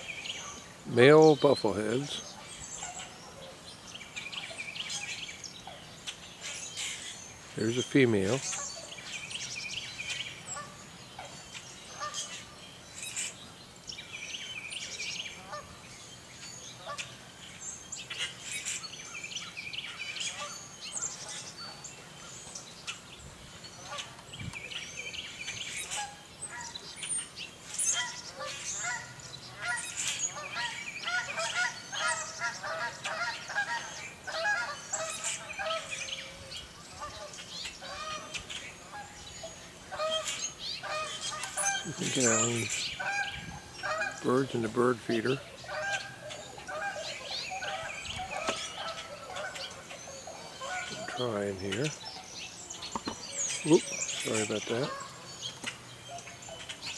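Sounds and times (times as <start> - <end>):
songbirds chirping: 0.0 - 56.9
geese honking: 10.0 - 12.5, 15.2 - 15.9, 23.8 - 24.3, 25.7 - 26.9, 27.7 - 52.4, 53.0 - 56.9.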